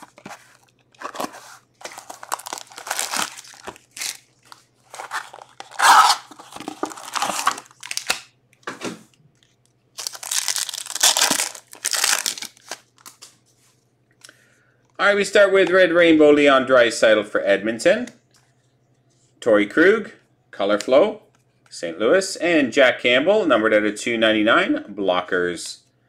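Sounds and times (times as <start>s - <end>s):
plastic wrap tearing and crinkling: 0.0s - 8.3s, 10.0s - 13.3s
foil pack tearing: 1.0s - 4.3s, 4.9s - 8.2s, 10.0s - 12.8s.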